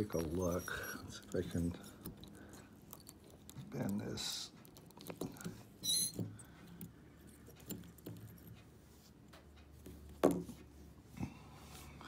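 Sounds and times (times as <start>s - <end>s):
metal parts clinking and scraping: 0.0s - 4.0s.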